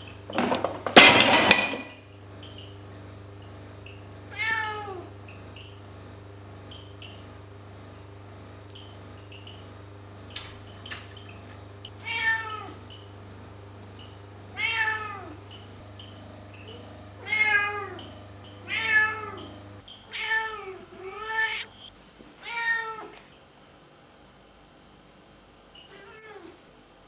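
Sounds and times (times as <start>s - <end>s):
cat meowing: 4.3s - 5.1s, 12.0s - 12.9s, 14.5s - 15.4s, 16.7s - 19.5s, 20.1s - 21.7s, 22.4s - 23.2s, 25.8s - 26.6s.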